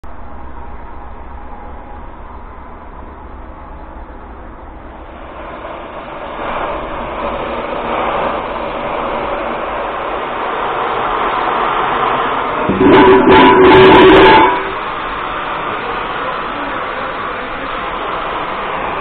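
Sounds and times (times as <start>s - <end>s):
steady low hum: 0.0s - 19.0s
cutting torch hissing: 4.7s - 19.0s.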